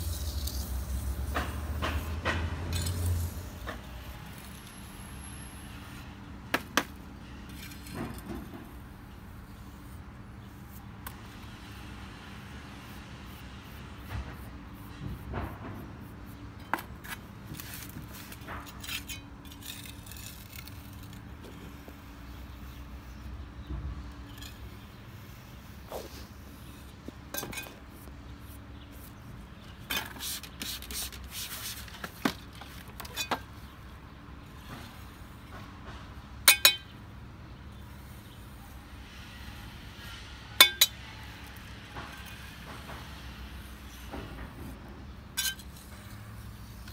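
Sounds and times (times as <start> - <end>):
hand tool scraping stone: 16.6 - 23.0, 29.9 - 33.3, 45.4 - 46.9.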